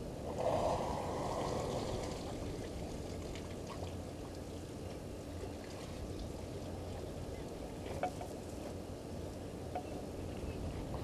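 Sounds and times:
water pouring and splashing: 0:01.1 - 0:04.0.

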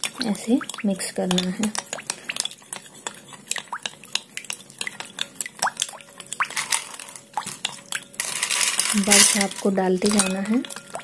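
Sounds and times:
spoon and ice clinking on glass: 0:05.2 - 0:11.0.

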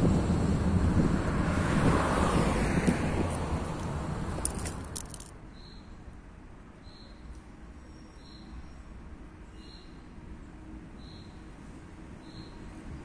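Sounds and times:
tram rumbling: 0:00.0 - 0:05.4
road traffic: 0:00.0 - 0:13.0.

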